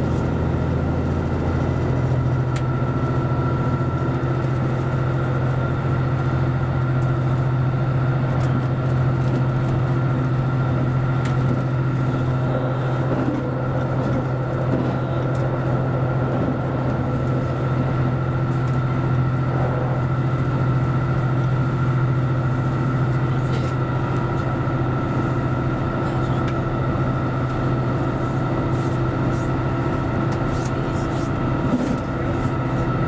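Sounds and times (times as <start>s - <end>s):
diesel railcar engine drone: 0.0s - 33.0s
train running noise: 0.0s - 33.0s.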